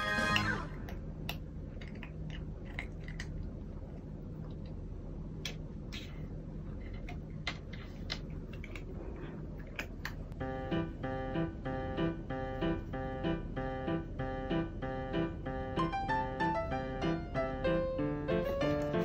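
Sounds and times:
background music: 0:00.0 - 0:00.8, 0:10.4 - 0:19.0
low steady hum: 0:00.0 - 0:19.0
cat licking and chewing: 0:00.8 - 0:10.4.

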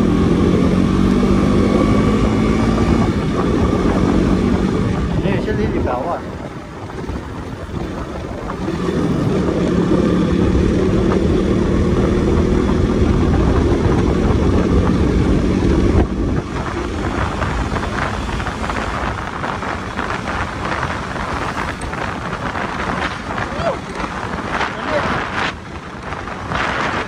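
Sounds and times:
motorcycle engine running: 0:00.0 - 0:27.0
road noise: 0:00.0 - 0:27.0
wind rumble on microphone: 0:00.0 - 0:27.0.

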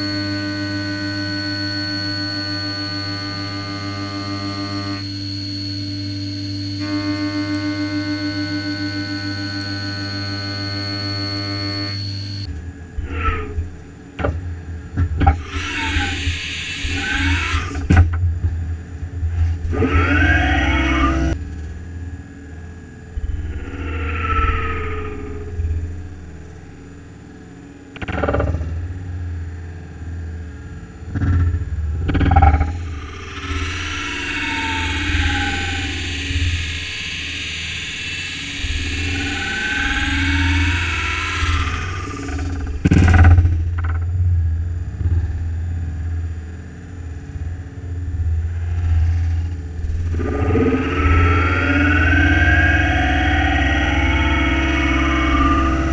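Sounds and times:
milling machine spindle hum: 0:00.0 - 0:55.9
rough metal cutting noise: 0:15.2 - 0:18.1, 0:19.5 - 0:21.4, 0:32.2 - 0:43.4, 0:49.8 - 0:55.9.

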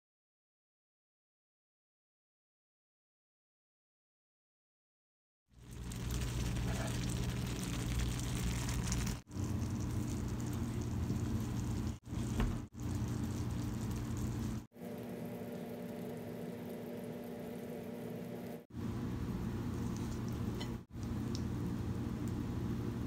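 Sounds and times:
food sizzling in a pan: 0:05.6 - 0:11.1.

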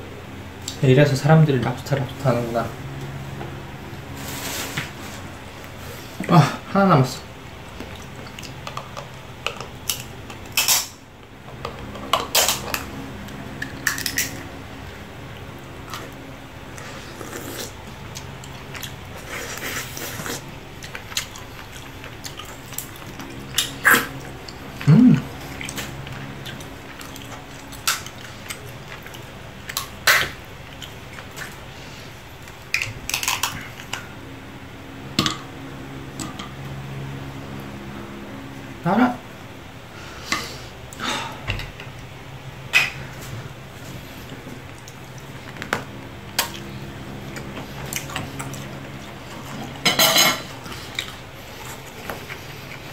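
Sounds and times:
lobster shell cracking: 0:13.6 - 0:14.4, 0:32.7 - 0:34.0.

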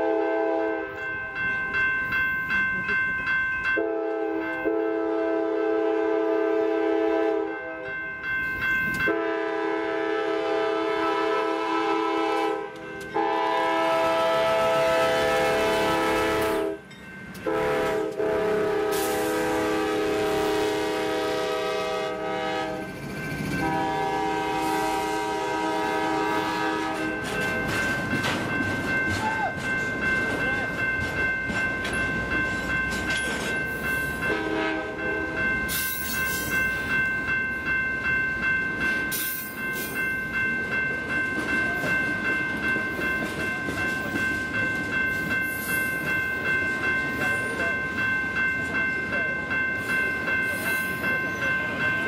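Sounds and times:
locomotive horn blasts: 0:00.0 - 0:01.0, 0:03.8 - 0:07.9, 0:09.1 - 0:16.8, 0:17.4 - 0:22.9, 0:23.6 - 0:27.2, 0:34.2 - 0:35.1
crossing bell ringing: 0:00.0 - 0:52.0
train cars clattering over rails: 0:26.5 - 0:33.9.

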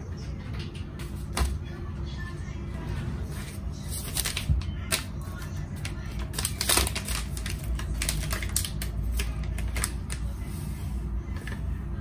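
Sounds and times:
foil sachet crinkling and tearing: 0:03.9 - 0:10.3.

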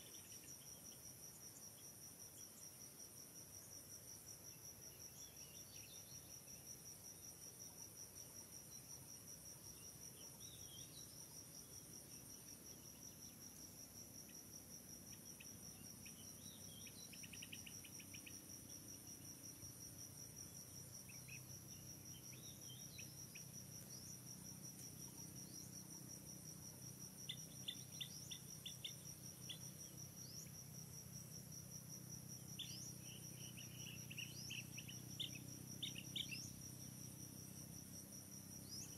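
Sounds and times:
insects trilling: 0:00.0 - 0:38.9.

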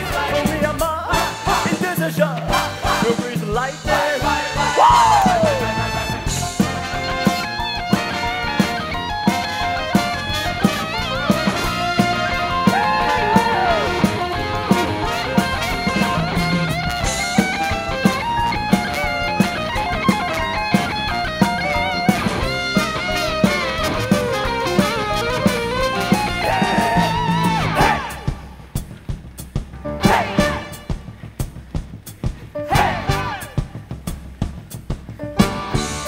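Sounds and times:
drum kit beat: 0:00.0 - 0:36.0
electric guitar: 0:04.8 - 0:28.2.

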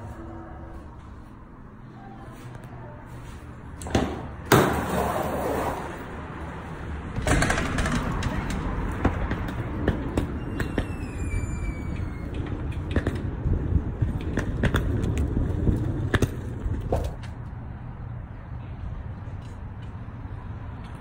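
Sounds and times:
footsteps: 0:00.0 - 0:04.3
outdoor traffic noise: 0:00.0 - 0:21.0
faint falling squeal: 0:10.2 - 0:12.6.

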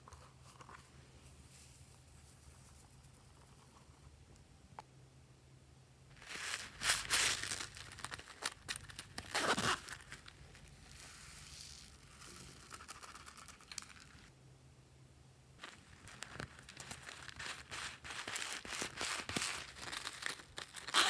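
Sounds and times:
beads pouring hissing patter: 0:06.2 - 0:14.3
foam beads rattling in plastic box: 0:06.2 - 0:14.3, 0:15.6 - 0:21.0.

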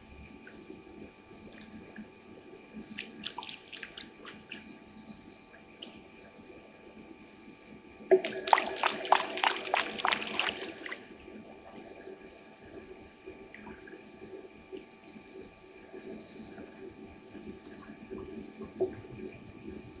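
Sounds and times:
crickets trilling: 0:00.0 - 0:20.0.

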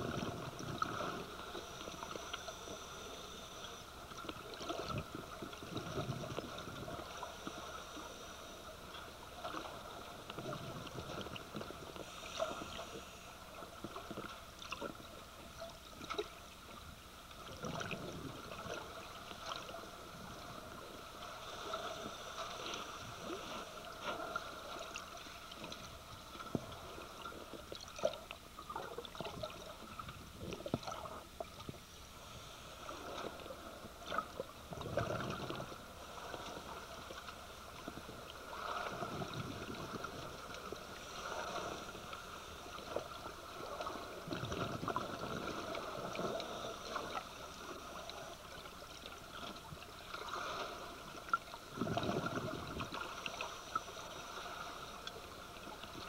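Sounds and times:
steady hiss: 0:00.0 - 0:10.3, 0:11.0 - 0:14.4, 0:18.4 - 0:27.5, 0:29.8 - 0:34.5, 0:35.5 - 0:44.2
bubbles gurgling underwater: 0:04.4 - 0:07.2, 0:17.5 - 0:19.6, 0:34.1 - 0:35.8, 0:43.5 - 0:47.2, 0:51.7 - 0:53.3.

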